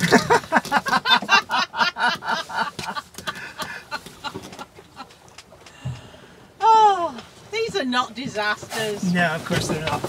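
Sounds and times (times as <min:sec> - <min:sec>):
women laughing: 0:00.0 - 0:05.3.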